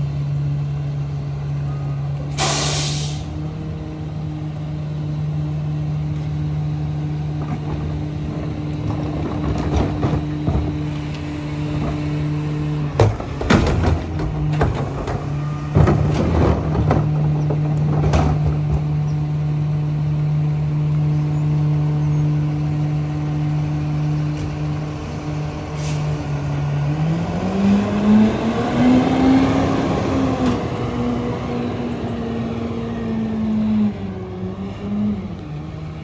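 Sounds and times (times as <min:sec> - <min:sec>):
garbage truck engine: 0:00.0 - 0:36.0
engine revving up: 0:26.6 - 0:35.4.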